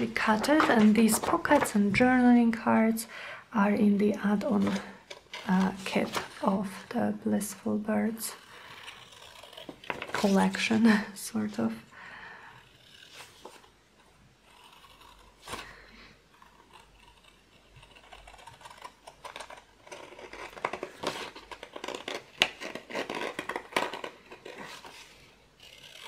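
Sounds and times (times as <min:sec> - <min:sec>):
scissors cutting paper: 0:00.0 - 0:02.2, 0:04.4 - 0:06.6, 0:07.7 - 0:10.8, 0:14.4 - 0:26.0.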